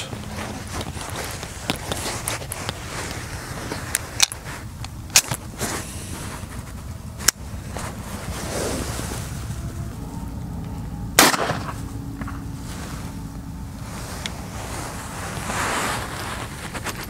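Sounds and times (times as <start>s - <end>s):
pistol shot: 11.2s - 11.8s.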